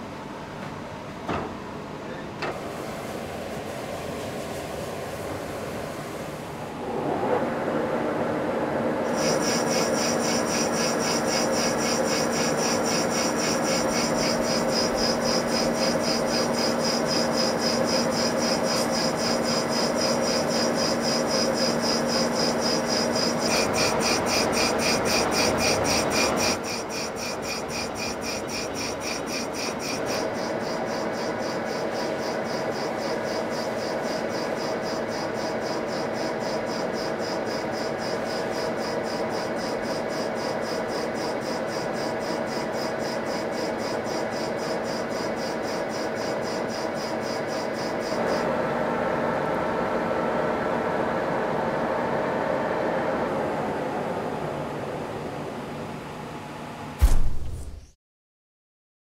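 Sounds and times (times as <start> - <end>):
metal lathe cutting steel: 9.0 - 37.6.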